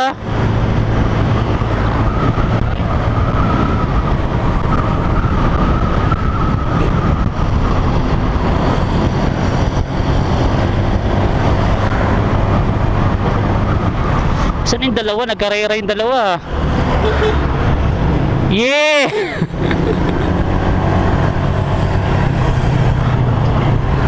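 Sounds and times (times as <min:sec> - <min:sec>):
motorcycle engine drone: 0:00.0 - 0:14.4, 0:19.4 - 0:24.0
road and wind rush: 0:00.0 - 0:24.0.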